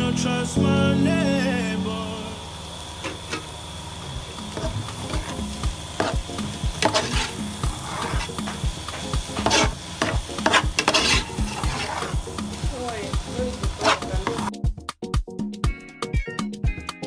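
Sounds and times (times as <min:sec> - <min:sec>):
spoon scraping metal pot: 0:04.5 - 0:05.4, 0:06.0 - 0:12.2, 0:13.7 - 0:14.5.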